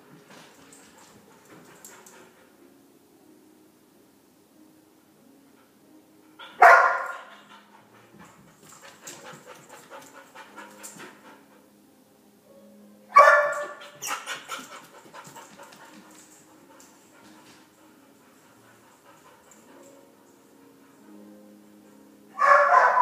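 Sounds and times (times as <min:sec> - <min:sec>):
dog barking: 0:06.4 - 0:07.4, 0:13.1 - 0:14.7, 0:22.4 - 0:23.0.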